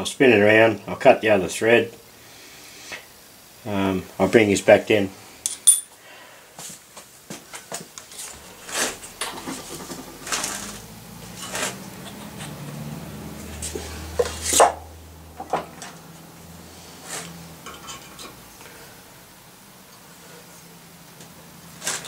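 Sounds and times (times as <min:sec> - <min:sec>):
metal tools clinking: 0:05.4 - 0:06.0.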